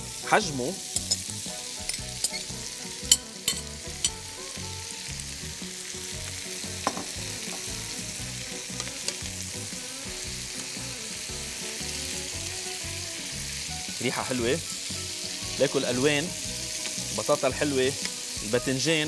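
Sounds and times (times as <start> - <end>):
vegetables sizzling in a pan: 0.0 - 19.0
utensils clinking against pan: 0.9 - 4.2.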